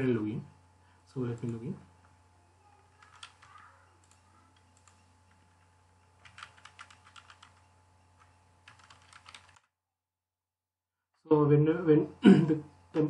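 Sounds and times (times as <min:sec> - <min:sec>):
faint keyboard typing: 0:01.2 - 0:01.8, 0:02.8 - 0:09.7.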